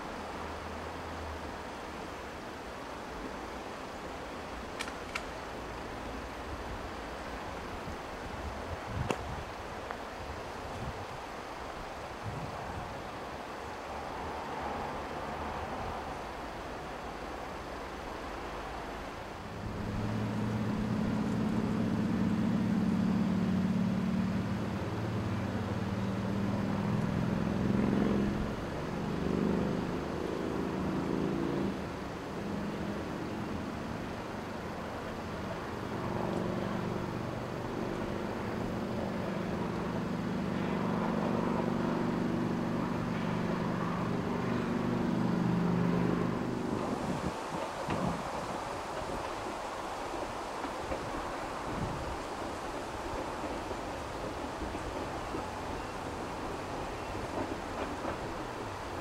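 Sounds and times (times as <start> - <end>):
engine droning: 19.3 - 59.0.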